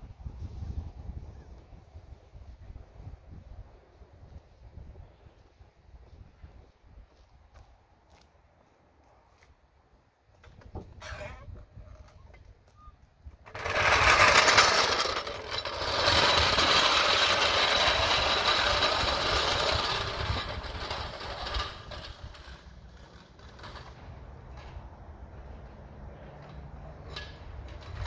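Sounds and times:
power tool rattling: 13.4s - 24.6s.

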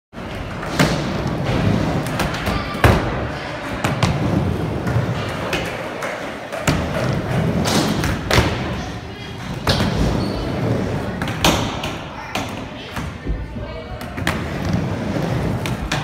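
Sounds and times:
skateboard wheels rumbling on ramp: 0.3s - 3.2s, 14.3s - 16.0s.

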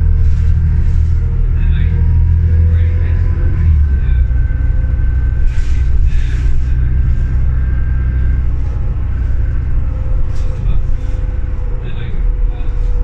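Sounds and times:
bus engine rumbling: 0.0s - 13.0s.

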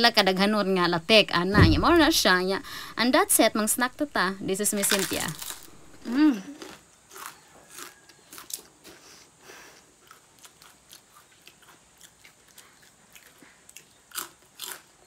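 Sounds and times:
crisp chip chewing crunches: 4.8s - 9.0s, 10.0s - 15.0s.

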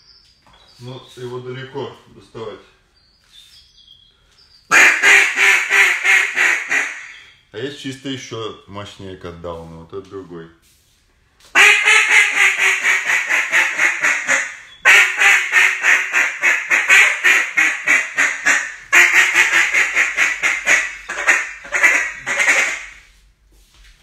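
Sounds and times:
duck call quacks: 4.7s - 7.2s, 11.6s - 23.1s.

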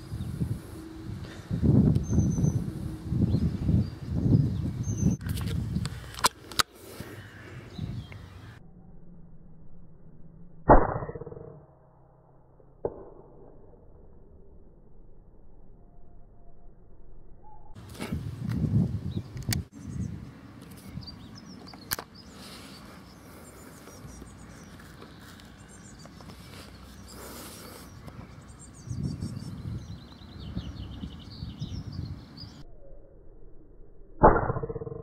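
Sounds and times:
birds chirping: 0.0s - 8.6s, 18.8s - 32.6s
steady outdoor hiss: 0.0s - 8.6s, 17.8s - 32.6s
sharp clicks: 5.2s - 6.7s, 19.3s - 19.7s, 21.6s - 22.2s.

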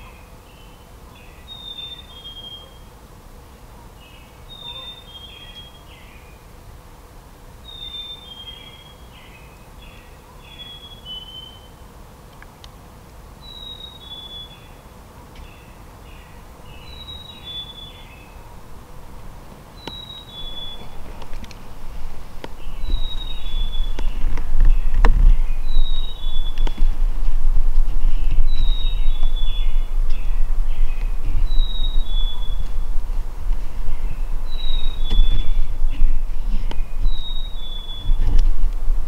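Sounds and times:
songbird singing: 0.0s - 3.0s, 3.8s - 6.6s, 7.6s - 39.0s
low background rumble: 18.1s - 39.0s.

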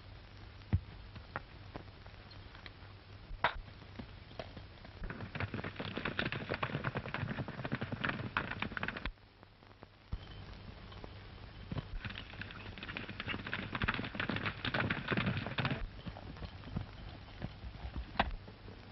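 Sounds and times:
steady low hum: 0.0s - 18.9s
horse hooves galloping: 3.4s - 9.2s, 10.5s - 18.9s.

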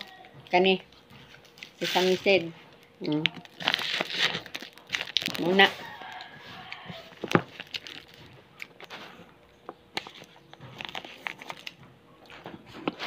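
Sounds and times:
plastic bag crinkling: 1.4s - 9.2s, 10.0s - 12.5s.

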